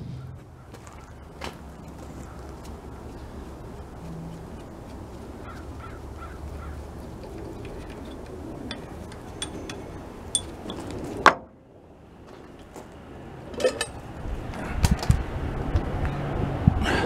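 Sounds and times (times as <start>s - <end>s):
metal parts clinking: 7.2s - 11.0s, 13.5s - 14.0s.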